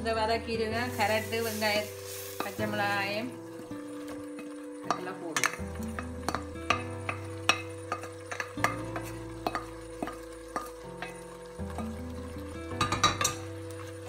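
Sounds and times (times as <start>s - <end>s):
soft background music: 0.0s - 14.0s
wooden spoon knocking on frying pan: 4.1s - 13.9s.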